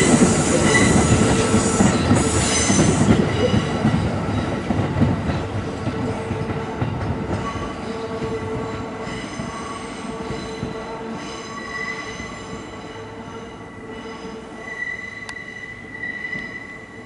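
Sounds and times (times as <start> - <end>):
train wheels squealing: 0.0 - 4.5, 9.0 - 17.0
train rumble: 0.0 - 14.6.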